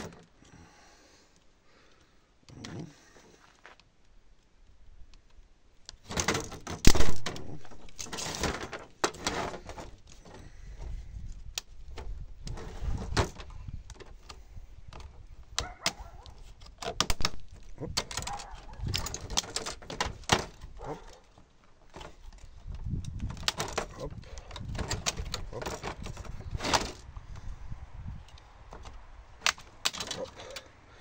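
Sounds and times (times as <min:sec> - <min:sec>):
plastic and metal parts knocking: 0:06.0 - 0:11.0, 0:12.0 - 0:21.2, 0:21.9 - 0:27.5.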